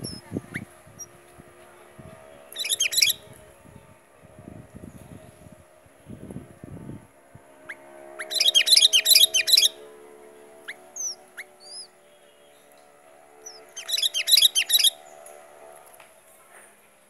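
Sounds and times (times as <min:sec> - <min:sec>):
bird chattering: 0:02.5 - 0:03.2, 0:08.2 - 0:09.8, 0:10.7 - 0:11.9, 0:13.4 - 0:15.0
bird whistled notes: 0:02.6 - 0:03.2, 0:08.2 - 0:09.8, 0:10.7 - 0:11.9, 0:13.5 - 0:15.0.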